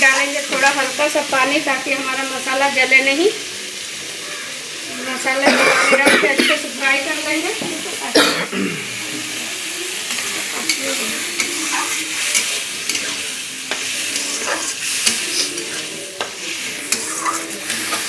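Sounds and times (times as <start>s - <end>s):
spice paste sizzling in a pan: 0.0s - 18.0s
spatula scraping a pan: 10.0s - 18.0s.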